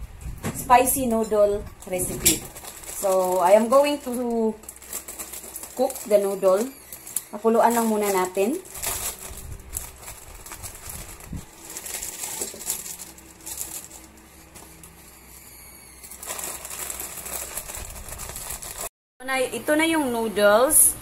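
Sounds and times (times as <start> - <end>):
plastic packets crinkling: 1.8 - 15.2, 15.9 - 18.9.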